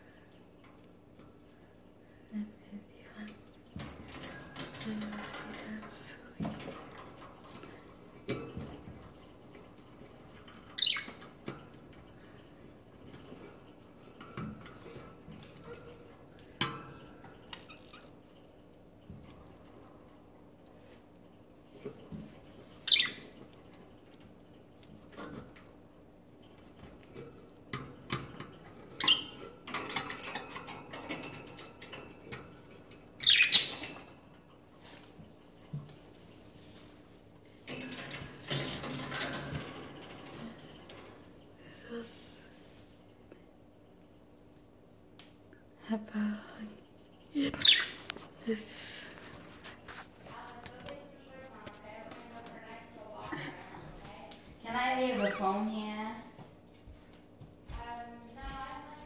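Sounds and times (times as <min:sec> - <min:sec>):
knocks and rattles from cage: 0:03.6 - 0:45.1, 0:46.8 - 0:59.0
bird chirping: 0:10.8 - 0:11.2, 0:22.8 - 0:23.3, 0:29.0 - 0:29.4, 0:33.2 - 0:33.9, 0:47.5 - 0:48.1.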